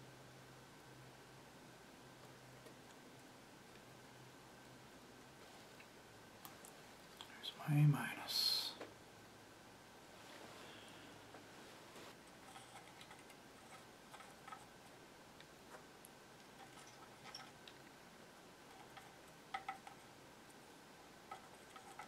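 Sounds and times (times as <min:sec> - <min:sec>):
faint handling clicks and taps: 0:18.7 - 0:20.6.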